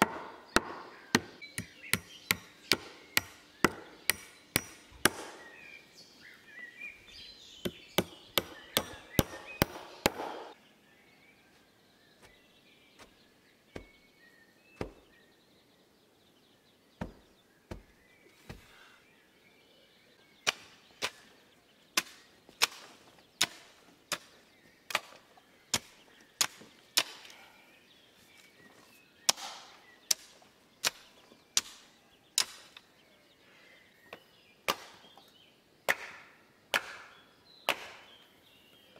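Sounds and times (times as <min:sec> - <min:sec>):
hammer striking wood: 0:00.0 - 0:05.4, 0:07.6 - 0:10.6
hoe chopping into soil: 0:07.7 - 0:10.6.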